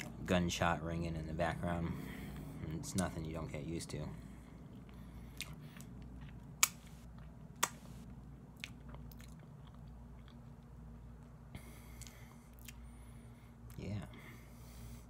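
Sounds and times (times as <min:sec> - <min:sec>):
person chewing: 0:04.4 - 0:13.8.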